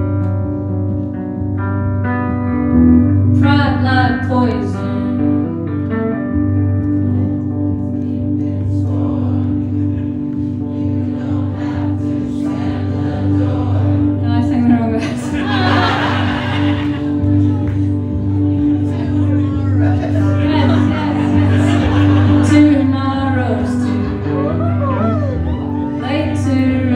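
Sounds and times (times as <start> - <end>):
electric guitar chords: 0.0 - 26.9
person singing: 7.0 - 26.9.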